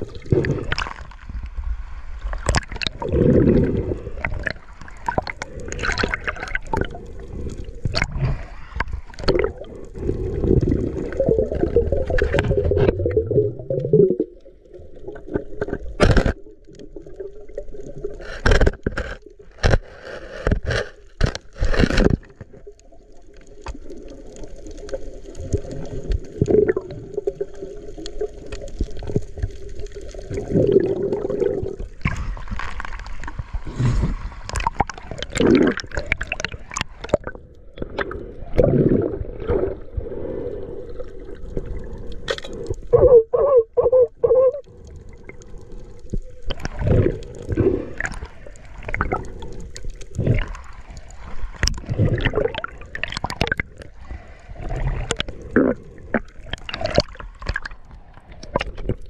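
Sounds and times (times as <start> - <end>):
water sloshing and gurgling: 0.0 - 59.0.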